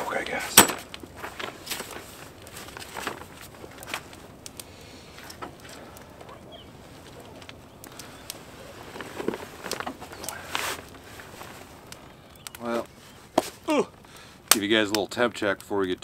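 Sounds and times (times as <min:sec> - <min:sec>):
knocks and rustles of camp chair: 0:00.5 - 0:04.3, 0:08.4 - 0:11.8, 0:13.3 - 0:13.7.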